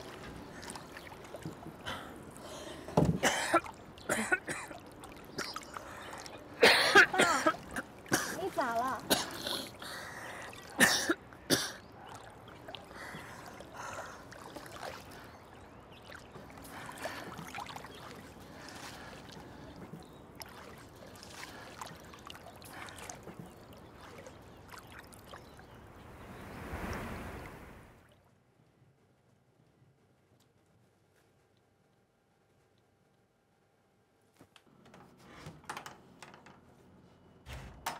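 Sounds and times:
water lapping against a boat: 0.0s - 28.3s
man coughing: 3.2s - 4.8s, 6.6s - 8.4s, 9.0s - 9.8s, 10.8s - 11.8s.

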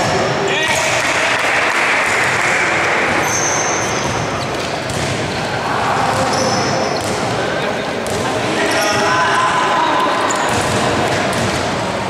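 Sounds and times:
murmur of voices: 0.0s - 12.0s
sneakers squeaking on court floor: 3.1s - 9.1s, 10.0s - 11.7s
basketball bouncing: 4.1s - 5.4s, 7.0s - 7.3s, 10.4s - 11.7s.

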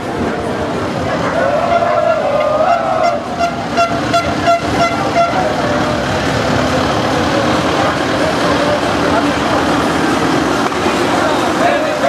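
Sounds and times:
horn tooting short blasts: 2.7s - 5.6s
tractor engine running: 3.2s - 12.0s.

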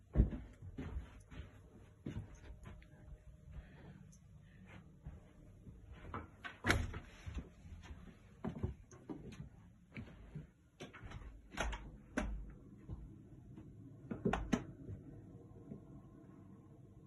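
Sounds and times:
footsteps on wooden floor: 0.0s - 4.0s, 4.7s - 6.4s, 7.2s - 15.0s.

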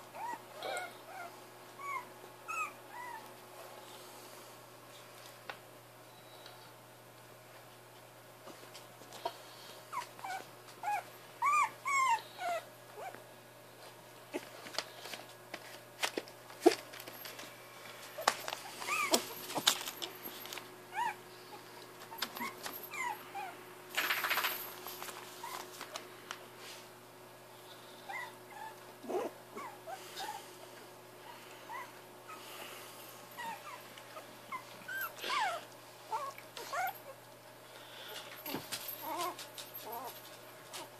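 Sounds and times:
puppies whimpering: 0.2s - 3.2s, 9.9s - 13.2s, 18.7s - 19.4s, 33.4s - 37.2s
puppy squeaks: 1.8s - 3.2s, 10.2s - 13.1s, 18.9s - 19.2s, 34.5s - 36.9s.

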